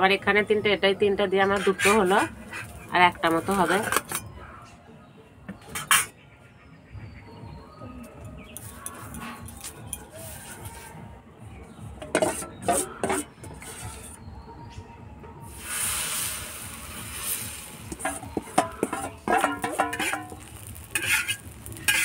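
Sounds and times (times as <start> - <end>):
spatula clattering and scraping: 1.5 - 4.3, 5.7 - 6.1, 12.0 - 14.2, 17.1 - 22.0
metal utensils clinking: 1.6 - 4.3, 5.7 - 6.1, 12.0 - 14.2, 16.6 - 22.0
batter sizzling on griddle: 15.5 - 22.0.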